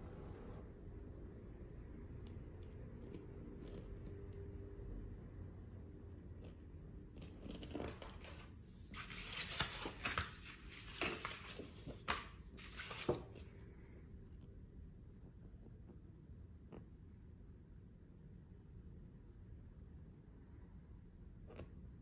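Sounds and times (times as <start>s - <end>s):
paper rustling and crackling: 7.3s - 13.5s.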